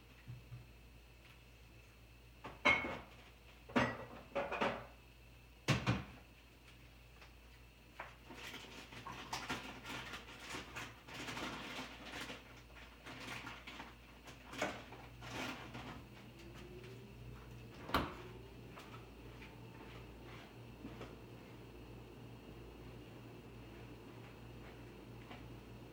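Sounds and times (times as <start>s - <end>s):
rustling and scraping with clicks: 6.6s - 17.0s.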